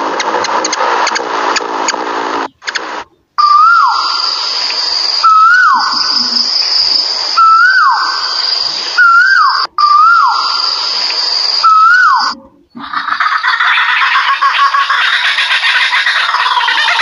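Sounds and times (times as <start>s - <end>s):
high-pitched insect drone: 3.5s - 17.0s
koel calling: 11.7s - 17.0s.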